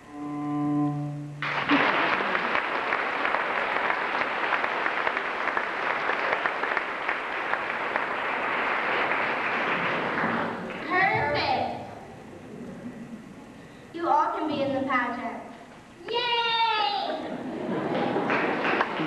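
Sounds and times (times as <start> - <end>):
cello low bowed note: 0.0 - 1.5
audience applause: 1.4 - 11.6, 17.4 - 19.0.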